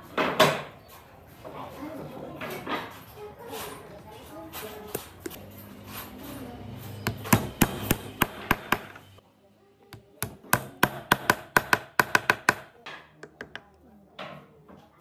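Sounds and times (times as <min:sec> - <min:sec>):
taps on wooden dowels: 0:10.0 - 0:13.7.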